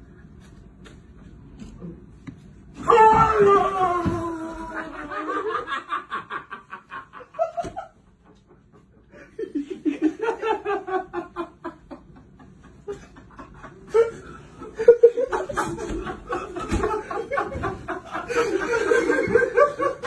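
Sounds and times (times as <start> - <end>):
person laughing hard: 3.4 - 20.0.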